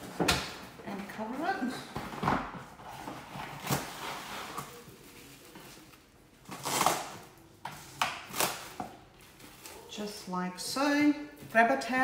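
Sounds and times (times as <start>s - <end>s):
cling wrap tearing: 6.5s - 7.4s.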